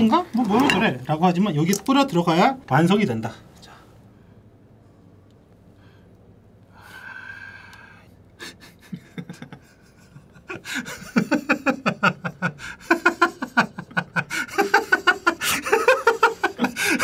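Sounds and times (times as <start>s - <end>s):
man laughing: 8.4s - 17.0s.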